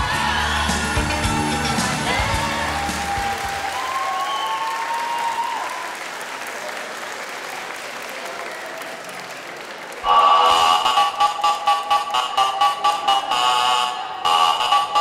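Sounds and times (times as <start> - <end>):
dance music: 0.0 - 3.8, 10.0 - 15.0
audience applauding: 0.0 - 13.9
crowd cheering: 0.0 - 15.0.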